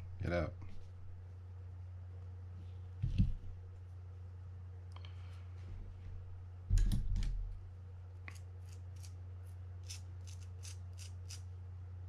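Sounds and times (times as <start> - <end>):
steady low hum: 0.0 - 12.0
dull bump: 3.0 - 3.6
toothbrush scrubbing metal part: 9.8 - 11.4.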